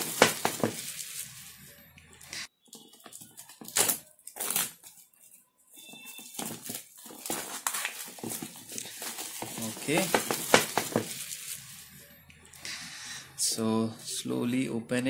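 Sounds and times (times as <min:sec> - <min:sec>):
plastic wrap crinkling and tearing: 0:00.0 - 0:01.6, 0:02.9 - 0:11.9.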